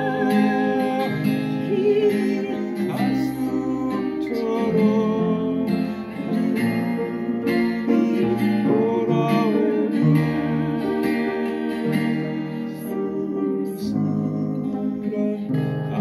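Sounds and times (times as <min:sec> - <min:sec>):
acoustic guitar: 0:00.0 - 0:16.0
person singing: 0:00.0 - 0:16.0
upright piano playing: 0:00.0 - 0:16.0.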